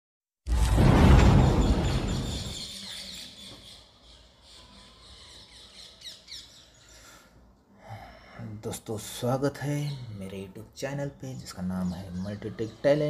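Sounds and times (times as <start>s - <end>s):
loud explosion-like blast: 0.5s - 2.7s.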